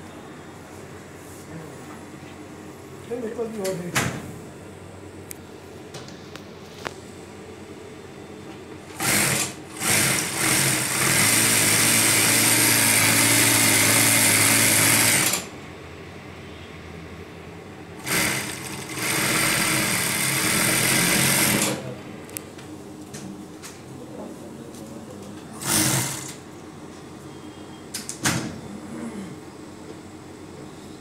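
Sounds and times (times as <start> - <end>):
sewing machine stitching cloth: 9.0 - 15.5, 18.0 - 21.8, 25.6 - 26.4.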